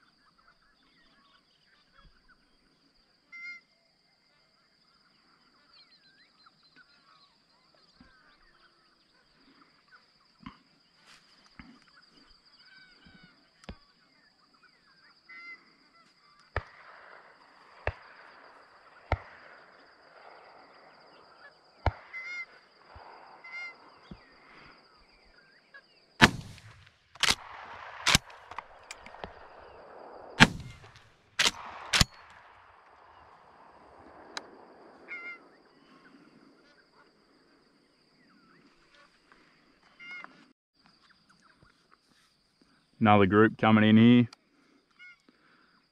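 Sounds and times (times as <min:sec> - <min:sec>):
distant shotgun shots: 0:16.5 - 0:23.4, 0:26.2 - 0:35.5
loud close shotgun shots: 0:26.2 - 0:35.0.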